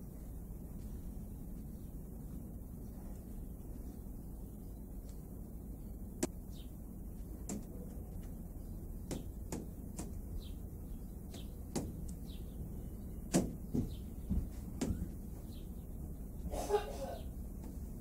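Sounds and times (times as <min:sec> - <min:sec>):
low steady rumble: 0:00.0 - 0:18.0
small birds chirping: 0:00.0 - 0:18.0
sharp irregular taps: 0:09.0 - 0:10.4, 0:11.2 - 0:12.2, 0:13.3 - 0:15.2.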